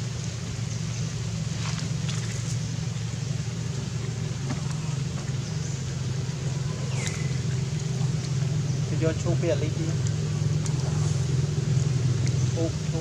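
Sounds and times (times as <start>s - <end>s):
low engine hum: 0.0s - 13.0s.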